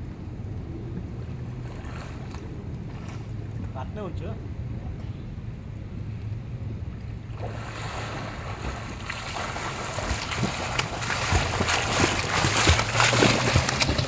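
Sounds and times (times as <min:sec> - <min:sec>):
swimmers splashing water: 0:07.4 - 0:14.0.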